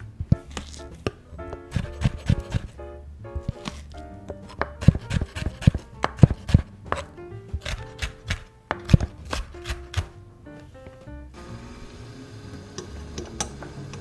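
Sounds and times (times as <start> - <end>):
soft background music: 0.0 - 14.0
knife chopping on wooden board: 0.3 - 2.8, 3.4 - 10.1.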